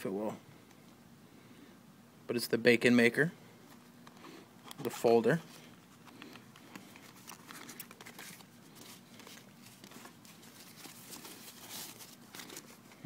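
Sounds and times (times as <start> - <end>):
paper and cardboard crinkling: 4.7 - 13.0.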